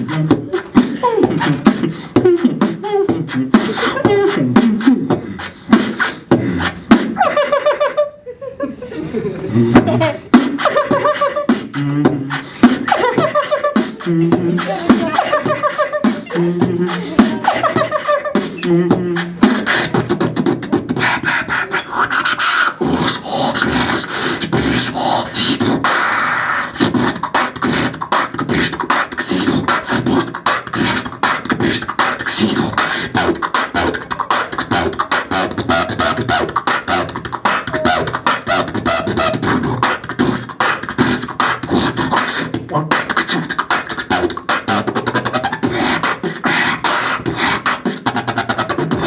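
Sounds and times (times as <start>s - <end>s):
beatboxing into microphone: 0.0s - 49.0s.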